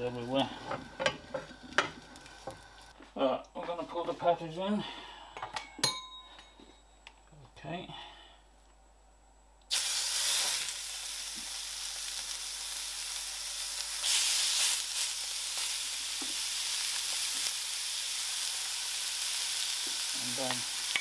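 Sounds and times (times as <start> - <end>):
meat sizzling in hot oil: 0.0 - 3.0, 9.7 - 21.0.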